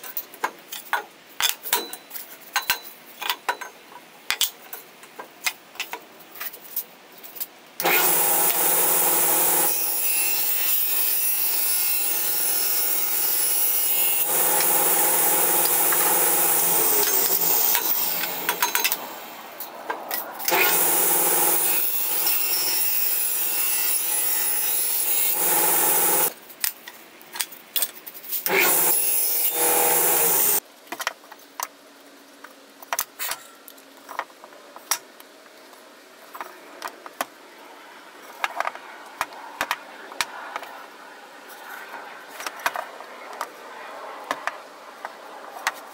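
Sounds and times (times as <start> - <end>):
table saw running: 7.8 - 18.7, 20.5 - 26.3, 28.5 - 30.6.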